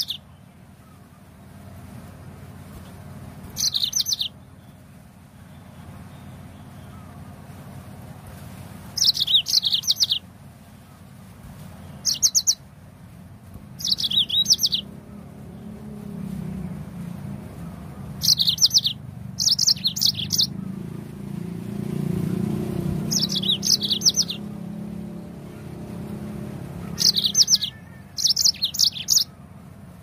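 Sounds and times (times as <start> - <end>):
canary singing trills: 0.0 - 1.1, 3.4 - 4.8, 8.9 - 10.3, 11.8 - 12.7, 13.8 - 30.0.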